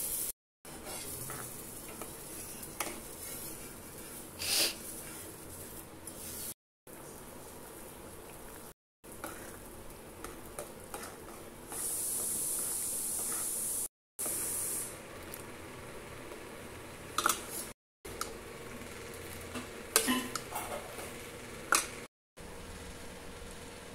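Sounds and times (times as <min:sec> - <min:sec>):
sizzling hiss: 0:00.0 - 0:06.6, 0:09.1 - 0:15.7
ladle stirring thick curry: 0:09.2 - 0:11.7.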